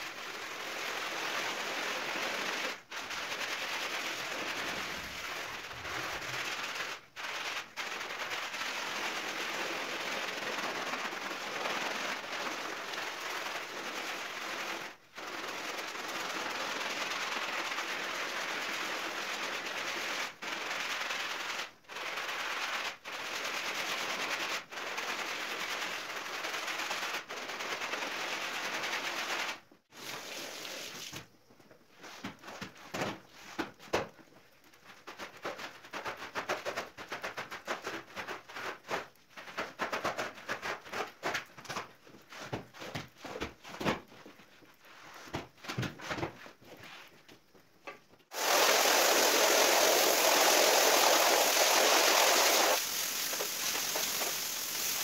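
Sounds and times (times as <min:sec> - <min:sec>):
brush scrubbing soapy rug: 0:00.0 - 0:27.9, 0:48.3 - 0:55.0
water rushing from hose: 0:29.9 - 0:31.2, 0:48.3 - 0:55.0
squeegee scraping: 0:48.3 - 0:55.0.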